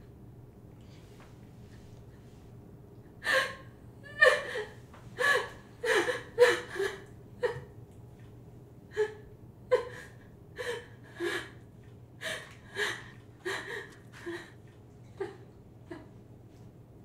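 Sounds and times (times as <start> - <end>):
woman crying in gasping sobs: 3.2 - 7.8, 8.9 - 11.6, 12.2 - 16.1.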